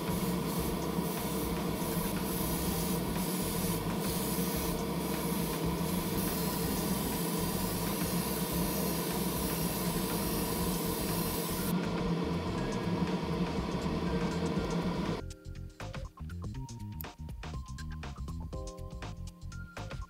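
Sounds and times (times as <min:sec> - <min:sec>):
paint spray hissing: 0:00.0 - 0:11.7
motor hum: 0:00.0 - 0:15.2.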